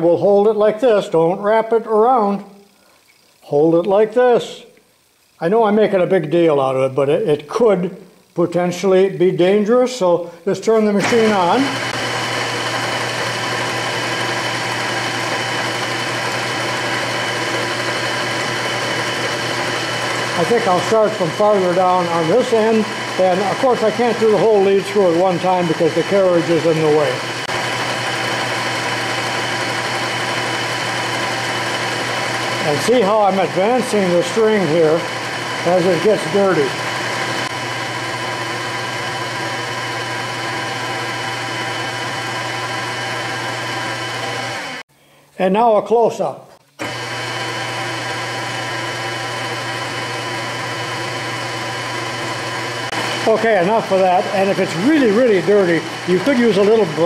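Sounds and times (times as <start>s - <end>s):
lathe motor humming and whining: 11.0s - 44.8s, 46.8s - 57.0s.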